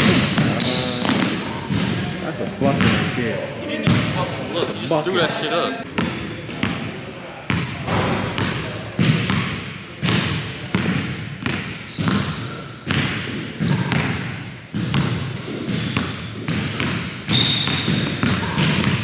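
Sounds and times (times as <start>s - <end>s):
basketball bouncing on wooden floor: 0.0s - 2.0s, 2.7s - 3.2s, 3.8s - 4.1s, 7.5s - 19.0s.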